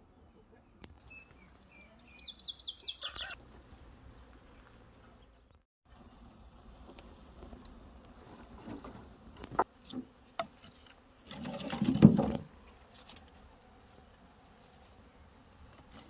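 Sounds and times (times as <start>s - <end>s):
wood scraping and rattling: 8.2s - 13.3s.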